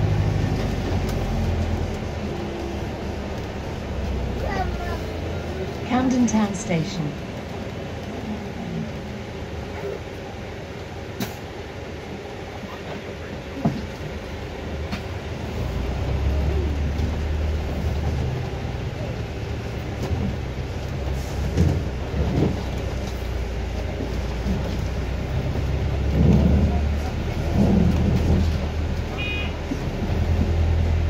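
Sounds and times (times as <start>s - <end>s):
bus cabin drone: 0.0s - 31.0s.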